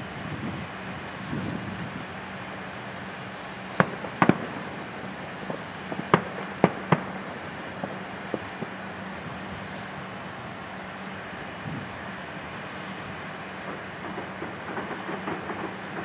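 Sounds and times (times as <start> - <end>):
firework shells bursting: 0.0 - 16.0
faint firework pops: 3.0 - 16.0.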